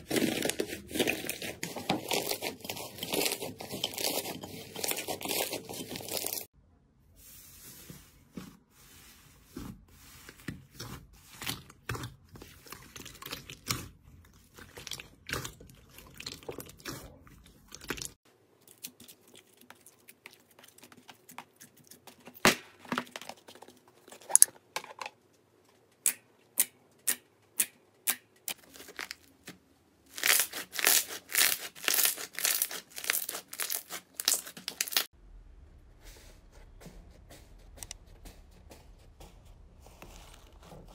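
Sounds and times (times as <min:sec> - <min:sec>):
slime crackling and popping: 0:30.1 - 0:35.1.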